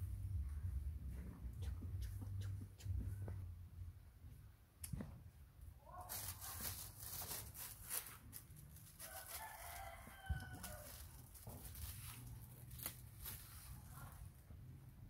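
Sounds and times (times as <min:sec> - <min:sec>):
plastic bag rustling: 0:05.9 - 0:14.4
faint rooster crowing: 0:08.9 - 0:11.6.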